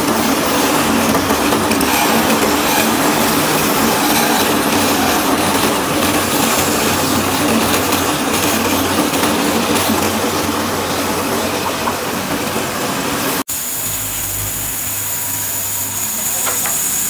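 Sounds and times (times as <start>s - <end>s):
rotary cutter carving wood: 0.0s - 9.1s.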